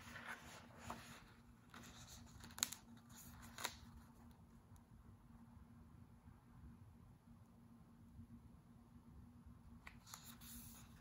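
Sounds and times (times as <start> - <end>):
book clicks: 1.8 - 3.9.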